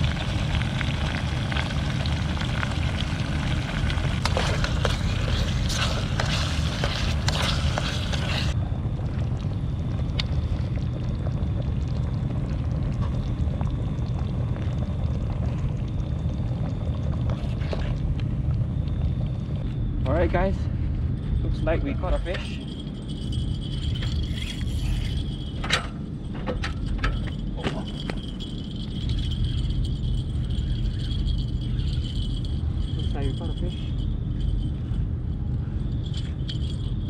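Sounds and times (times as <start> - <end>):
curry simmering in pot: 0.0 - 19.7
gas stove low rumble: 0.0 - 37.0.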